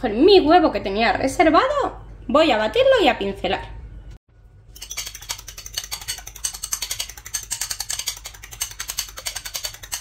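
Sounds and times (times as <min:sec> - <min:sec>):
utensil clicking against bowl: 0:04.8 - 0:10.0.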